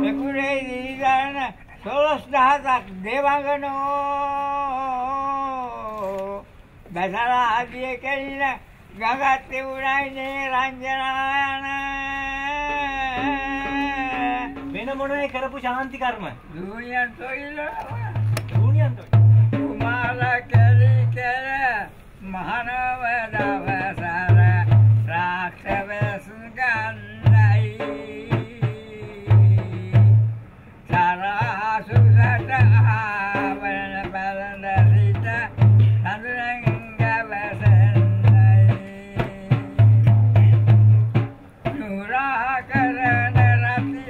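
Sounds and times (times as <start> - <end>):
low drum beat: 0.0 - 1.2, 12.5 - 15.3, 17.8 - 21.4, 23.0 - 44.0
old man chanting: 0.0 - 44.0.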